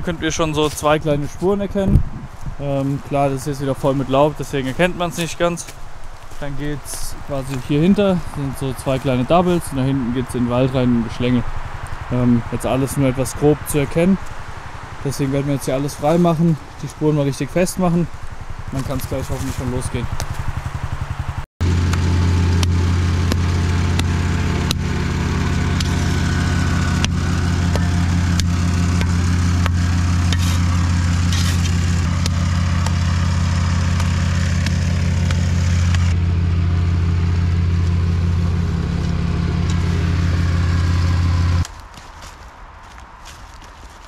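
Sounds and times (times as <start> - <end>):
small petrol engine running: 6.4 - 41.7
shovel scraping dirt: 21.6 - 36.2.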